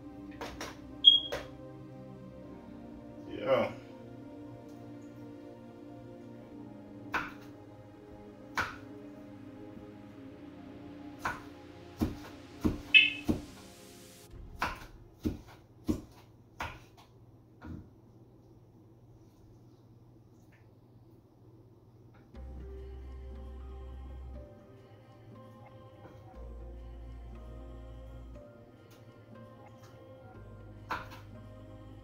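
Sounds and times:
background music with held notes: 0:00.0 - 0:16.0, 0:22.4 - 0:32.0
deep bass note: 0:14.2 - 0:15.2.

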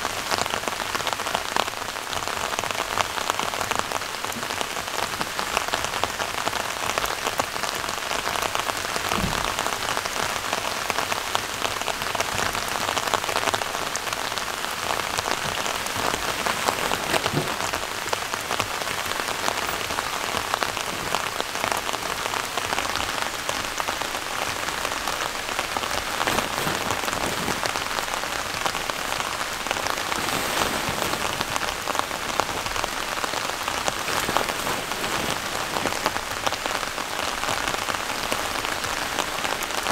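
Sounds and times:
steady rain patter: 0:00.0 - 0:39.9.

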